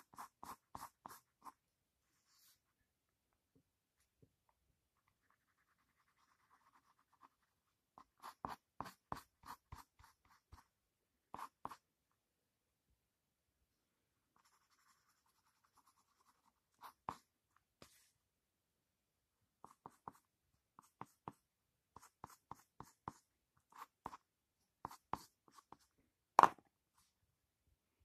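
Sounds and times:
pencil scratching on paper: 0:00.0 - 0:01.6, 0:05.0 - 0:10.7, 0:11.3 - 0:11.8, 0:14.4 - 0:18.1, 0:19.6 - 0:21.4, 0:22.0 - 0:24.2, 0:24.8 - 0:25.9.

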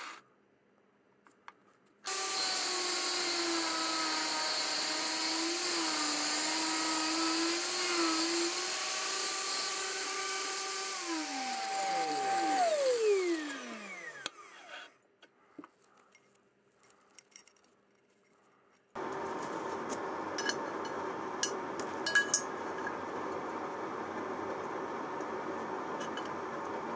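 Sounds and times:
angle grinder whine spinning down: 0:02.1 - 0:14.9.

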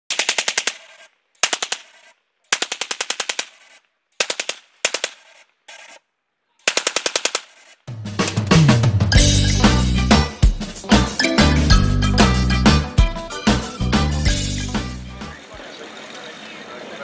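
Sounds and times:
machine gun bursts: 0:00.1 - 0:06.0, 0:06.6 - 0:07.9.

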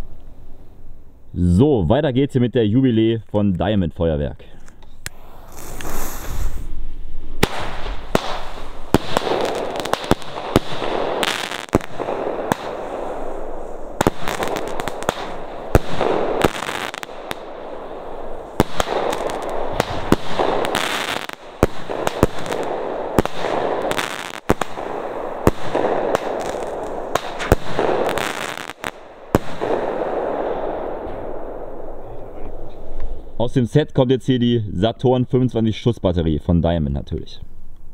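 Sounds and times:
crackling hiss: 0:00.0 - 0:03.6, 0:04.4 - 0:35.9
firework shots bursting: 0:05.0 - 0:33.2.

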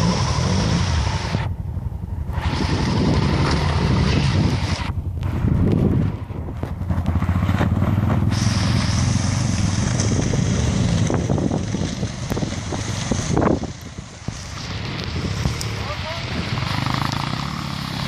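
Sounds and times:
motorcycle engine under throttle: 0:00.0 - 0:18.0
water spray hissing: 0:08.3 - 0:09.9.

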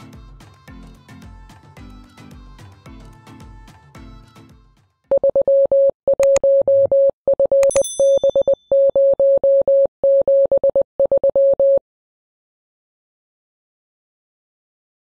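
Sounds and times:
music: 0:00.0 - 0:05.1
morse code beeps: 0:05.1 - 0:11.8
click with ringing chime: 0:07.6 - 0:08.7.

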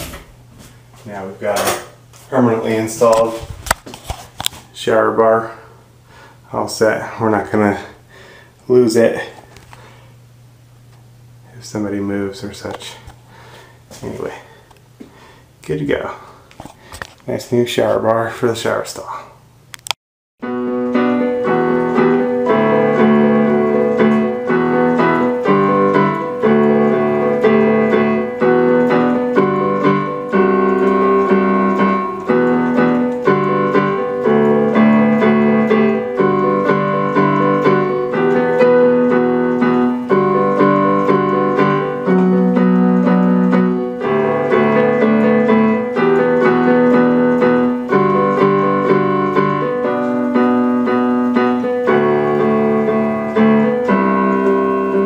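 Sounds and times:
electronic keyboard chords: 0:20.4 - 0:55.0.

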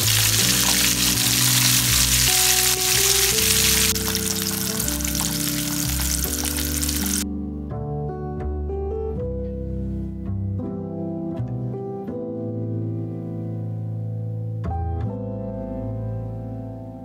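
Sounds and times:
food sizzling in hot oil: 0:00.0 - 0:07.2.

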